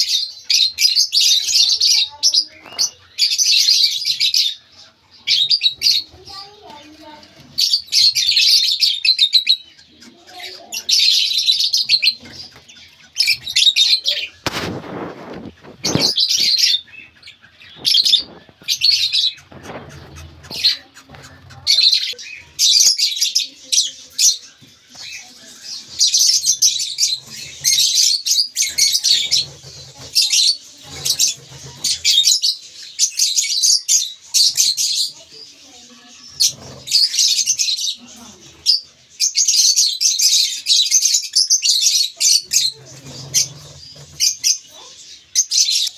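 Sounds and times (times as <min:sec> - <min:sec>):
birds giving raspy chirps: 0:00.0 - 0:45.9
rustling scrape: 0:12.1 - 0:16.8, 0:17.7 - 0:22.3, 0:24.2 - 0:32.4, 0:35.5 - 0:37.4, 0:42.4 - 0:45.1.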